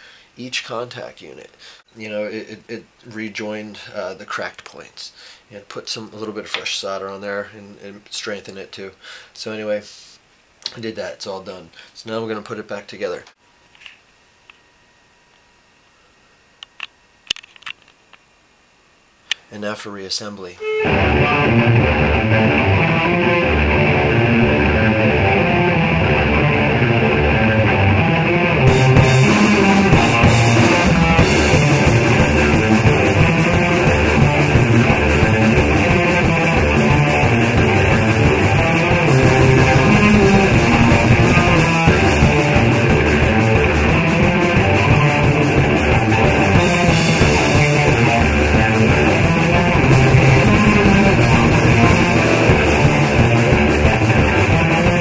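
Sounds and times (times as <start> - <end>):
rock music with guitar: 20.6 - 55.0.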